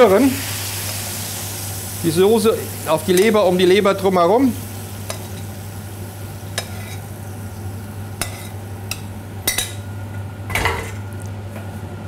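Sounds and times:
steady low hum: 1.8s - 12.0s
metal spoon clinking on pan: 8.2s - 9.8s.

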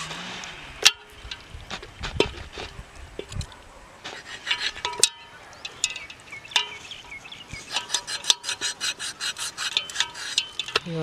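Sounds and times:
cleaver scraping metal bowl: 4.0s - 11.0s.

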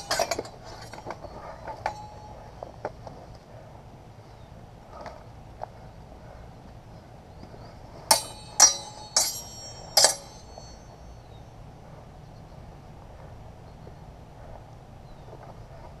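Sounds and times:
steel swords clashing: 0.0s - 2.6s, 8.1s - 11.3s.

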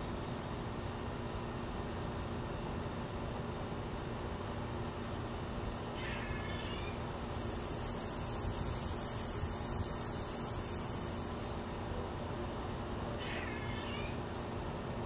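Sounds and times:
high-pitched buzz: 6.0s - 11.6s.

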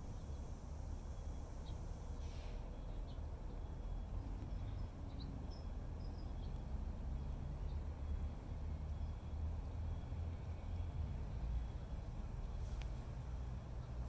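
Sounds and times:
faint bird chirps: 0.0s - 8.3s.

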